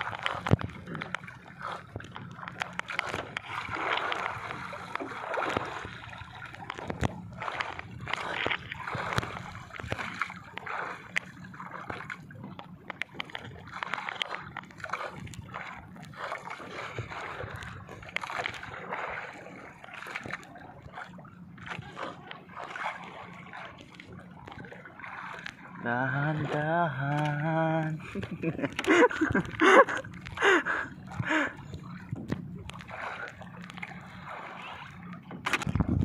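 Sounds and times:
water splashing against boat hull: 0.0 - 36.0
sharp clicks and knocks: 35.2 - 36.0.

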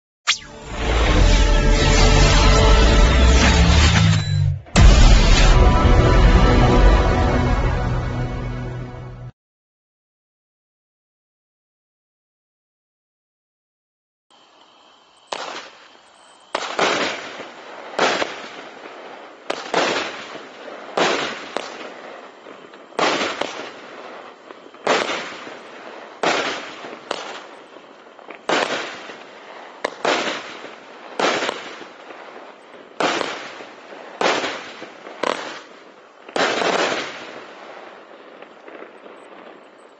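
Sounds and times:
firework barrage bangs: 0.3 - 6.6, 16.5 - 39.9.

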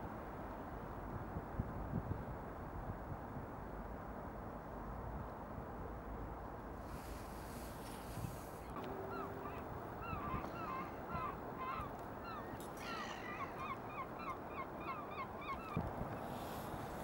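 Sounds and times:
steady outdoor hiss: 0.0 - 17.0
gulls calling: 8.6 - 16.7.

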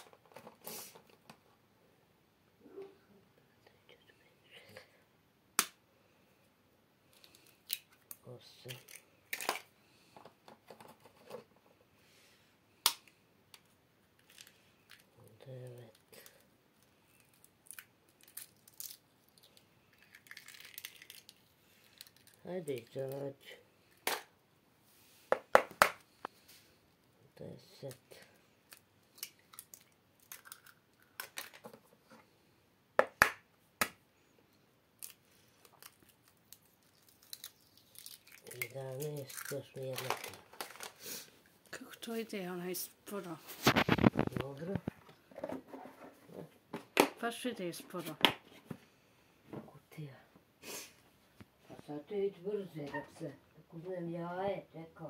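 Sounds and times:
eggshells cracking: 17.1 - 23.2, 28.6 - 31.7, 35.0 - 40.9
eggs cracking on bowl rim: 17.3 - 21.4, 29.2 - 31.5.

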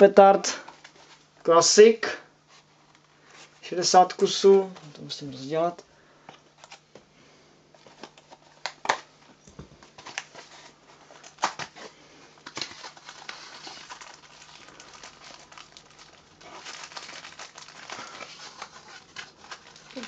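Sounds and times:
wrapping crinkling and tearing: 9.9 - 20.0.

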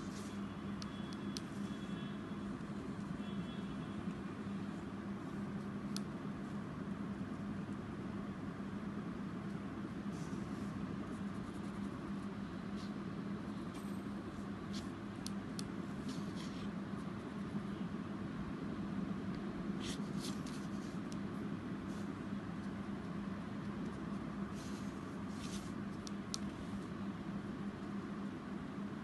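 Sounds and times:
low room hum: 0.0 - 29.0
paper being handled and brushed: 19.8 - 21.1, 24.5 - 25.8.

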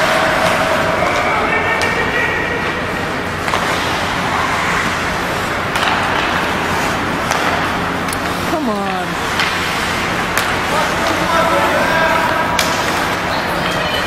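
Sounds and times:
arena noise: 0.0 - 14.0
hockey sticks clacking on puck: 3.4 - 4.9, 5.7 - 13.8.

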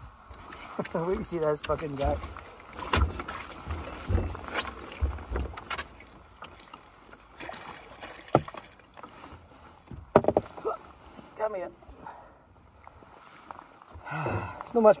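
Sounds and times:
fish lifted out of water: 2.3 - 9.9
knocks against boat hull: 9.9 - 10.5.

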